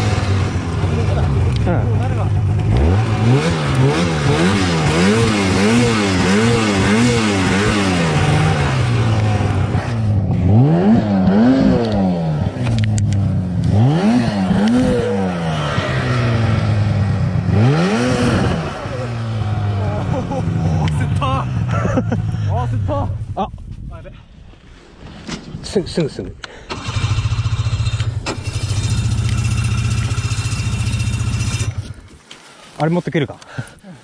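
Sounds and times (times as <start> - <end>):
snowmobile engine revving: 0.0 - 23.4, 25.6 - 32.0
sharp clicks: 26.0 - 30.3.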